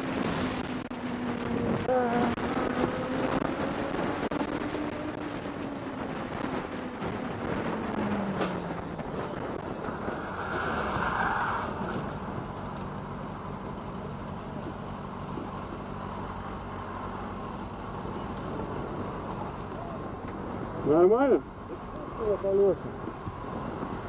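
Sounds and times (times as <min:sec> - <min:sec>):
wind on microphone: 0:00.0 - 0:11.1, 0:22.8 - 0:24.0
road noise: 0:00.0 - 0:24.0
vehicle engine: 0:00.0 - 0:24.0.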